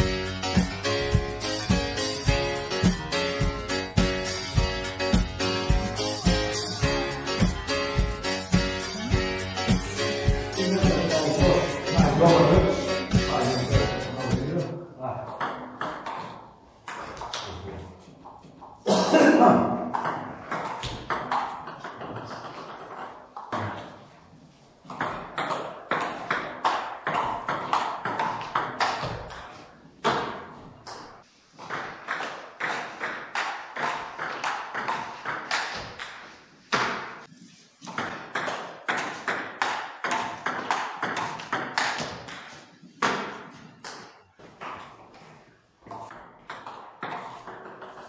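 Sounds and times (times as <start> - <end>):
table tennis ball hits: 15.2 - 17.6, 19.9 - 24.0, 24.9 - 48.0.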